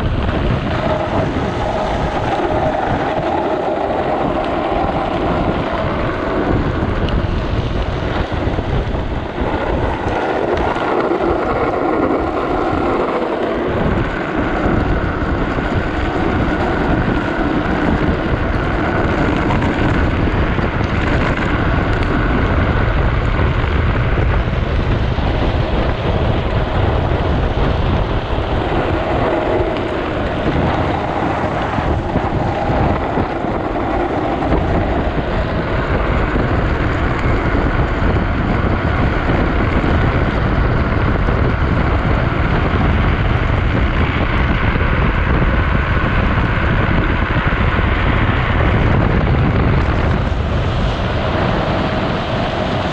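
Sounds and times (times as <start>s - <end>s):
wheels rumbling on wet asphalt: 0.0s - 52.9s
wind buffeting microphone: 0.0s - 52.9s.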